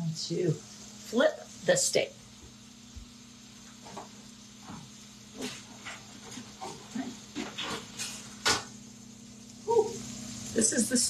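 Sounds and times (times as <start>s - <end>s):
steady low hum: 0.0s - 11.0s
kitchen clicks and clatter: 5.4s - 8.7s.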